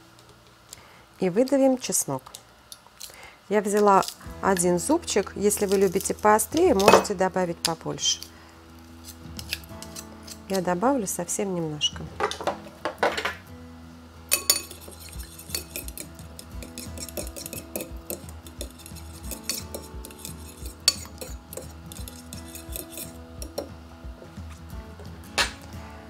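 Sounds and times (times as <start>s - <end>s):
fork clinking against glass bowl: 14.3s - 23.7s.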